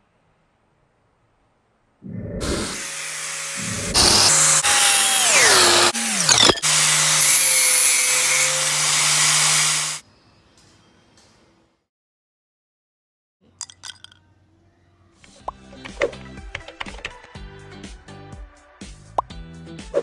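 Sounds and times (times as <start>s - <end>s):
power tool whining: 2.4s - 10.0s.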